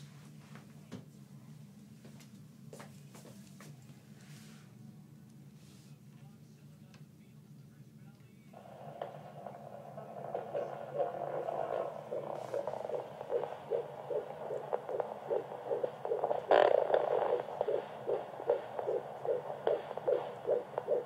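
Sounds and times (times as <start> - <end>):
doppler heartbeat whooshing pulse: 8.6 - 21.0
probe scraping: 8.6 - 21.0
swishing static: 8.6 - 21.0.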